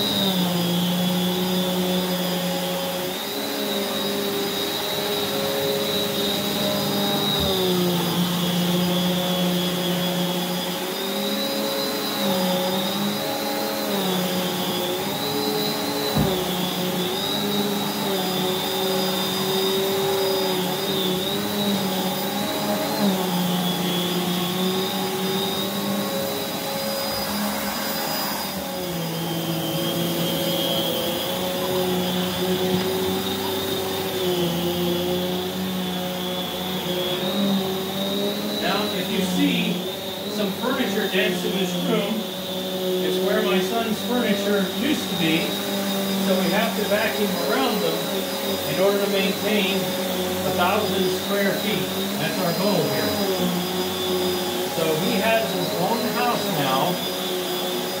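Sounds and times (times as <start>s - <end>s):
vacuum cleaner whining: 0.0s - 58.0s
knock: 16.1s - 16.4s.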